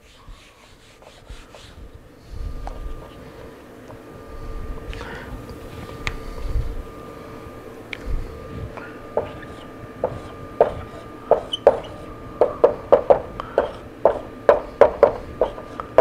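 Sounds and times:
faint steady hum: 0.0s - 16.0s
marker tapping on whiteboard: 9.2s - 16.0s.

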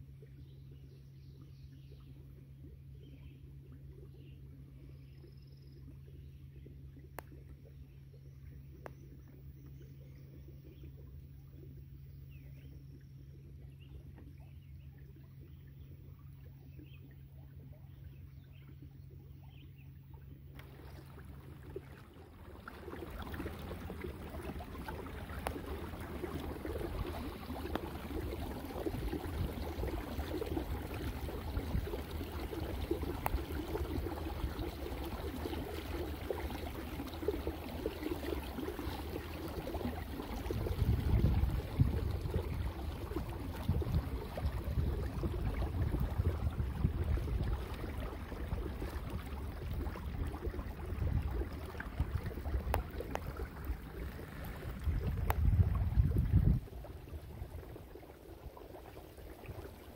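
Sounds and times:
water lapping against kayak hull: 0.0s - 59.9s
wind rumble on microphone: 40.4s - 53.0s, 54.2s - 58.6s.

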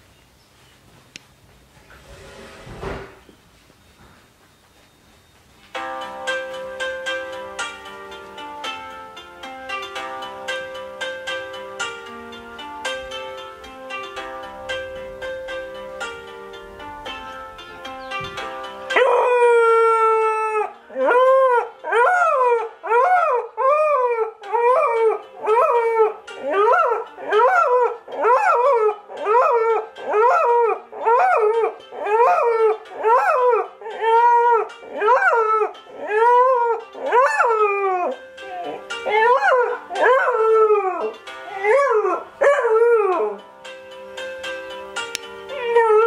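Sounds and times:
puppy howling: 18.9s - 43.4s.

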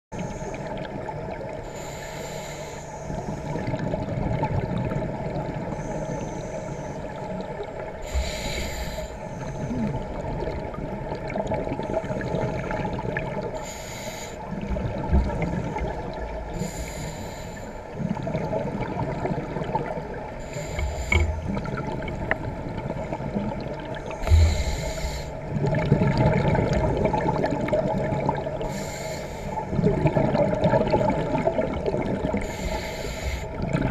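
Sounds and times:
diver breathing through regulator: 1.7s - 3.4s, 8.0s - 10.0s, 13.5s - 14.6s, 16.5s - 18.0s, 20.4s - 21.8s, 24.1s - 25.6s, 28.6s - 29.7s, 32.4s - 33.6s
low hum: 24.1s - 25.5s.

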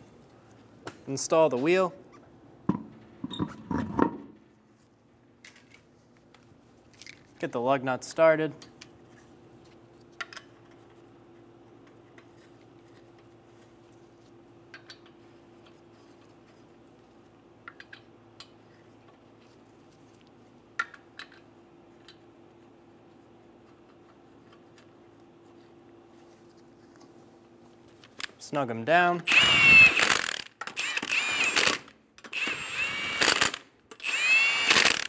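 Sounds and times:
faint steady hum: 0.0s - 34.7s.

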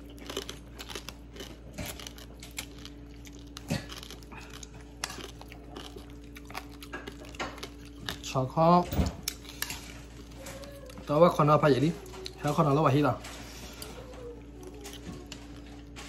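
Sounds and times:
man slurping and chewing noodles: 0.0s - 8.4s
steady low hum: 0.0s - 16.0s.

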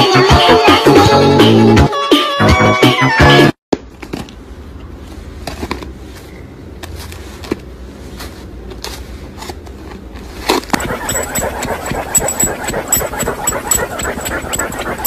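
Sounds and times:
electronic music burst: 10.7s - 15.0s.

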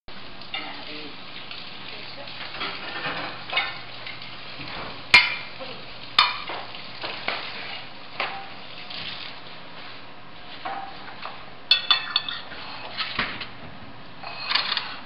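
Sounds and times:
steady hiss: 0.1s - 13.4s
utensils and plates clattering: 2.4s - 5.5s, 11.7s - 13.2s, 14.2s - 15.0s.

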